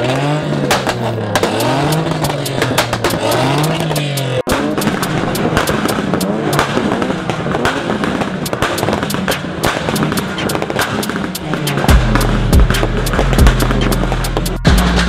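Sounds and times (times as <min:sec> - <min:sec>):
car engines revving: 0:00.0 - 0:15.0
exhaust pops and crackles: 0:00.0 - 0:15.0.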